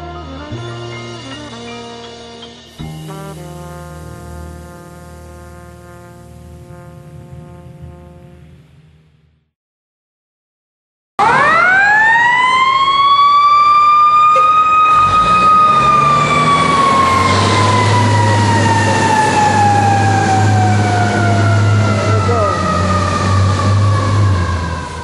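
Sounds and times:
low steady rumble: 3.1s - 9.3s
fire truck siren: 11.2s - 25.0s.

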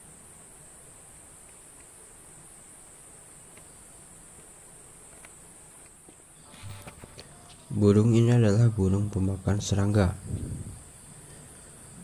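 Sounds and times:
high-pitched insect drone: 6.3s - 12.0s.

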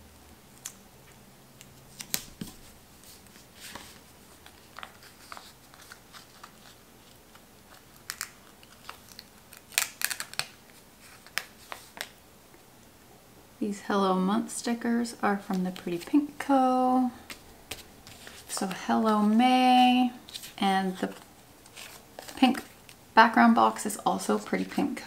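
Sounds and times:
sticker paper rustling: 1.9s - 12.1s, 17.2s - 19.4s, 20.3s - 23.0s.

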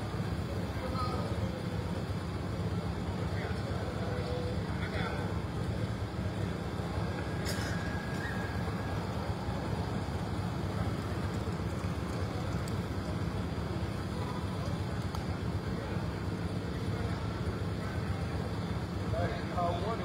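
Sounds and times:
low rumbling noise: 0.0s - 20.0s.

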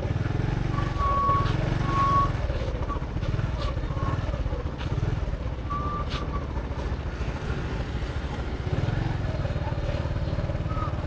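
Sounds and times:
motorbike engine running: 0.0s - 11.0s
short high beeps: 0.8s - 2.4s.

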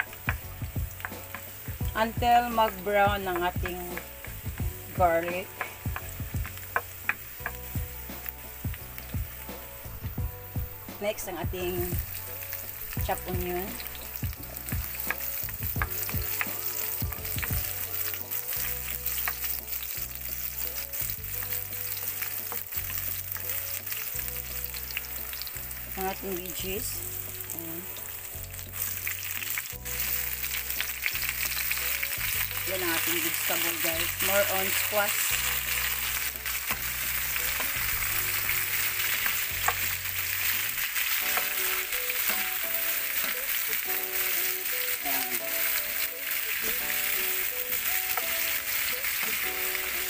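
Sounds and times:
onion and garlic sizzling in oil: 0.0s - 50.0s
wooden spatula clicking on pan: 2.6s - 7.6s.

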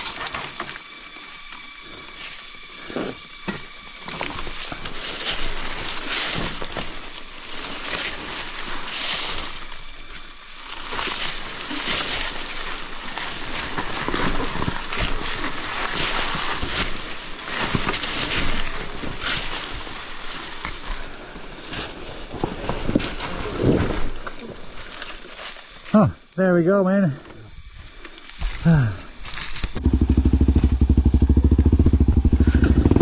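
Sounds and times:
dirt bike engine: 28.6s - 33.0s.

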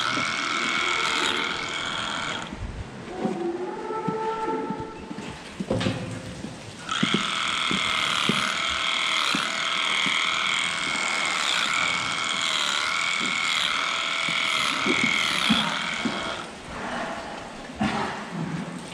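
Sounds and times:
electric clipper whining: 0.0s - 2.5s, 6.8s - 16.6s.

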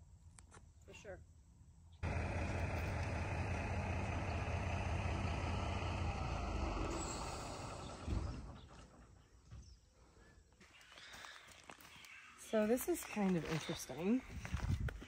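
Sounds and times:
heavy engine rumbling: 2.0s - 9.3s.

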